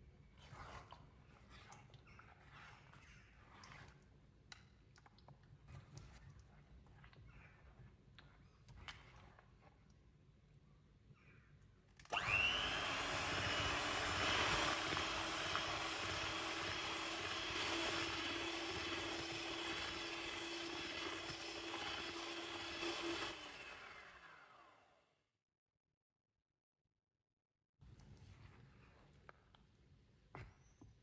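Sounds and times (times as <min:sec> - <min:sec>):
electric hand mixer whining: 0:12.1 - 0:25.0.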